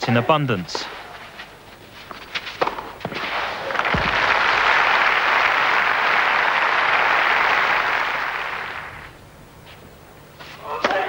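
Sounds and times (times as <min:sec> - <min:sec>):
stadium crowd applauding: 0:03.6 - 0:09.1.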